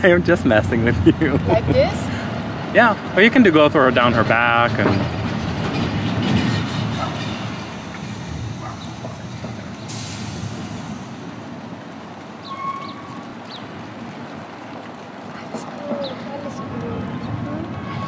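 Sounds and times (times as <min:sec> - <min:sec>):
road traffic rumble: 0:00.0 - 0:18.0
brief hiss: 0:09.8 - 0:11.2.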